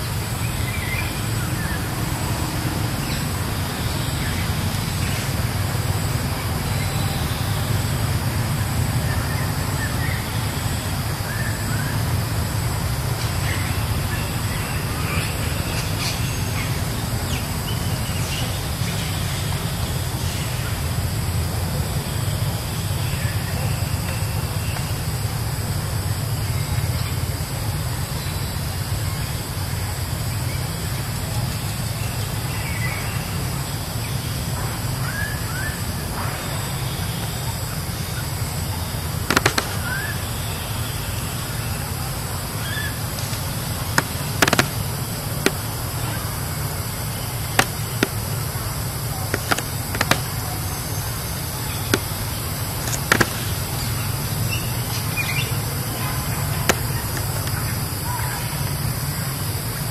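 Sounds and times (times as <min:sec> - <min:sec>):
sharp clicks or snaps: 0:39.3 - 0:40.0, 0:44.0 - 0:45.6.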